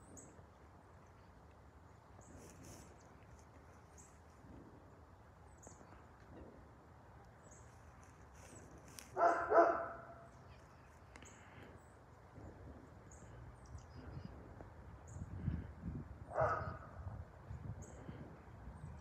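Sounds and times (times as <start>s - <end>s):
distant jet airliner rumble: 0.0s - 19.0s
dog barking: 9.2s - 10.3s, 16.3s - 17.0s.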